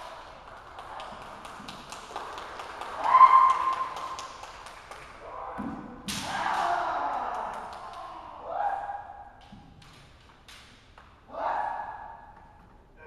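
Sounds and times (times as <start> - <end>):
bamboo swords clacking: 9.4 - 11.3.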